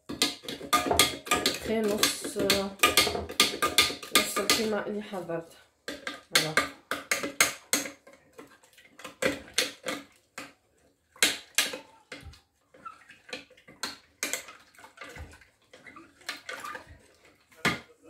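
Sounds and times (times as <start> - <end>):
spoon tapping plastic jug: 0.0 - 4.8, 5.9 - 10.6, 11.2 - 12.4, 13.2 - 15.4
liquid splashing: 5.9 - 18.0.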